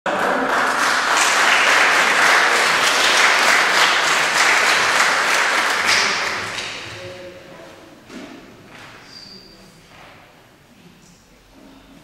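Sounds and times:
audience applauding: 0.1s - 6.8s.

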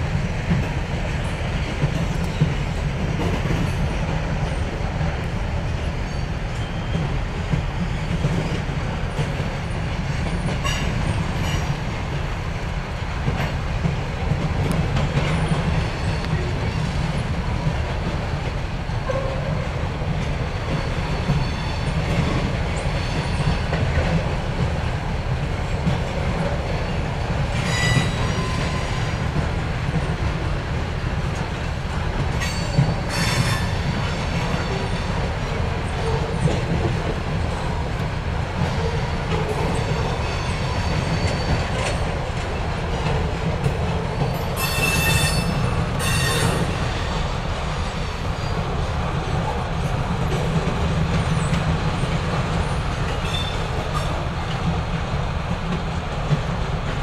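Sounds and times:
clickety-clack over rail joints: 0.0s - 57.0s
freight train wheels rumbling: 0.0s - 57.0s
high wheel squeals: 27.6s - 29.2s, 44.3s - 47.2s.

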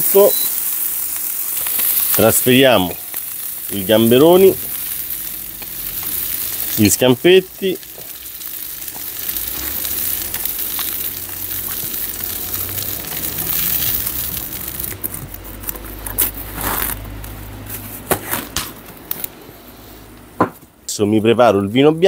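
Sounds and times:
oil sizzling in frying pan: 0.0s - 15.4s.

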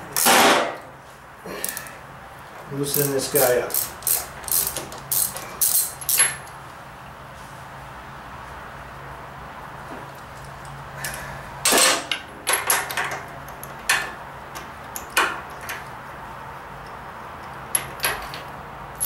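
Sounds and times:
metal tools clinking: 2.9s - 6.5s.

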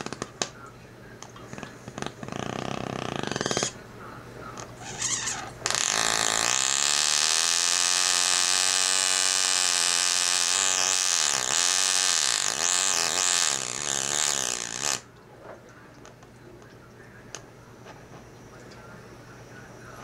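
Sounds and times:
gas torch burning with hiss: 4.9s - 15.0s.

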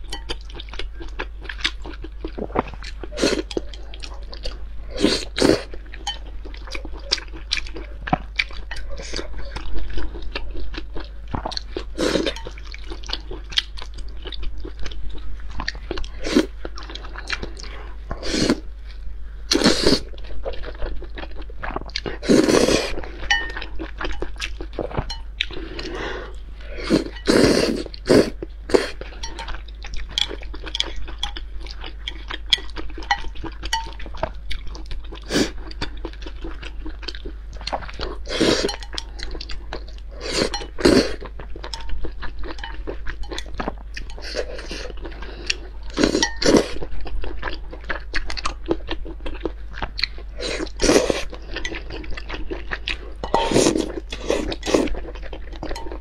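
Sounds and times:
wet chewing and crunching: 0.0s - 56.0s
chopsticks clinking on glass bowl: 12.2s - 12.6s, 23.3s - 24.3s, 29.2s - 31.4s, 32.1s - 34.1s, 41.8s - 44.4s, 46.0s - 46.6s.

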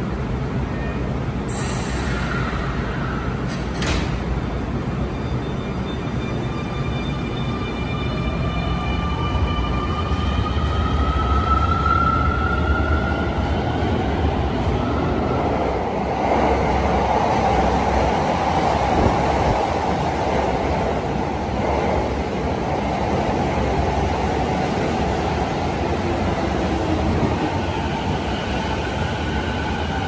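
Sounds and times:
train wheels rumbling on rail: 1.2s - 6.5s, 9.2s - 30.0s.

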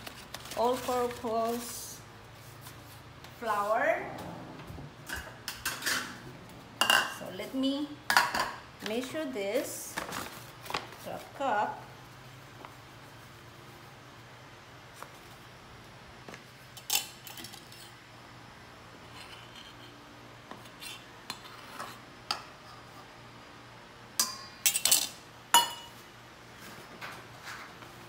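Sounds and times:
metal cup clinking against bowls: 24.2s - 25.9s.

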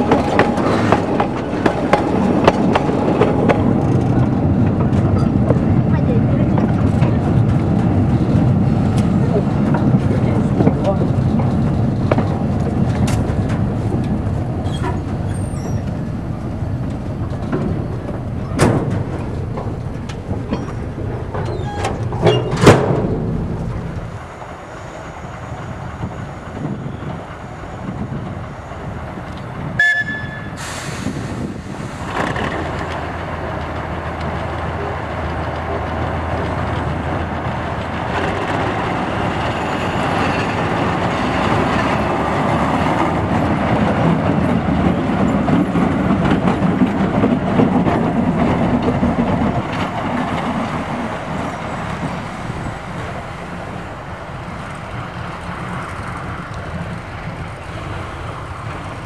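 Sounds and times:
diesel locomotive engine running: 0.0s - 59.0s
locomotive horn toot: 29.8s - 30.8s
short hiss: 30.6s - 32.1s.

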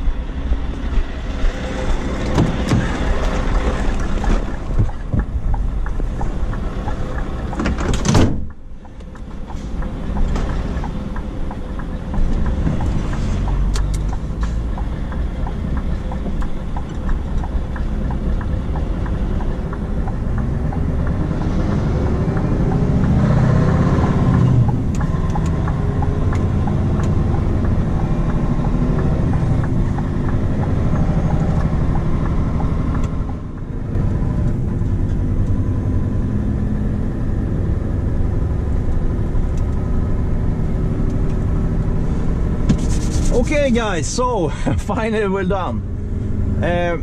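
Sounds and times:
truck diesel engine under load: 0.0s - 47.0s.

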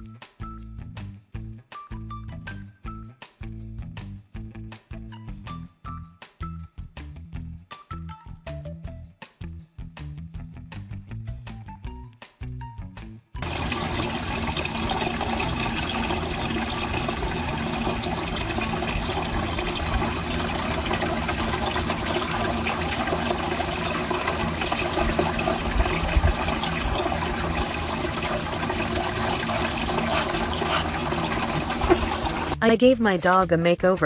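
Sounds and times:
fountain water splashing: 13.4s - 32.6s.

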